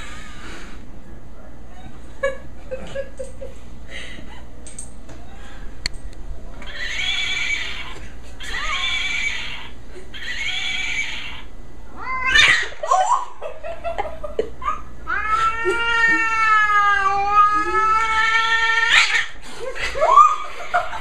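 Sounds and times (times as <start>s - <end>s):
cat yowling: 6.7s - 13.1s, 14.7s - 19.4s.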